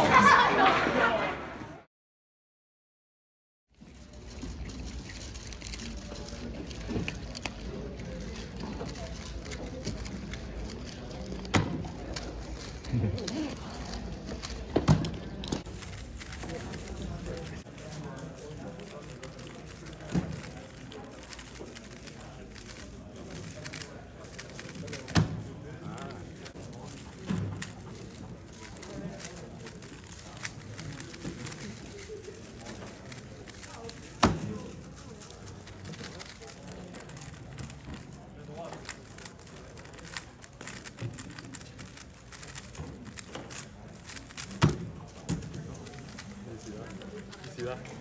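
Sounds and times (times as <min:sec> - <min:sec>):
puzzle cube clicking and rattling: 0:03.9 - 0:48.0
puzzle cube clicking: 0:35.5 - 0:46.3.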